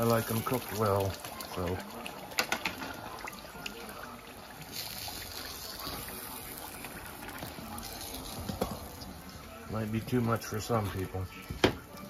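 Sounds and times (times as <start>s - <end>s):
oil sizzling while deep-frying: 0.0s - 12.0s
metal utensil clicking on pot: 2.4s - 2.9s.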